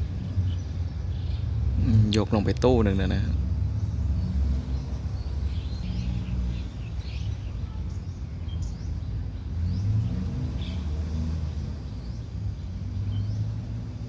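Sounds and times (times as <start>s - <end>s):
birds chirping: 0.0s - 14.0s
diesel machinery rumbling: 0.0s - 14.0s.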